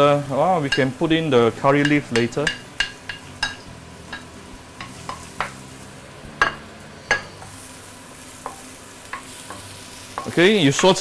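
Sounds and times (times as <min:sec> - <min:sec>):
food sizzling in oil: 0:00.0 - 0:11.0
spatula knocking against wok: 0:01.8 - 0:05.6, 0:06.4 - 0:07.6.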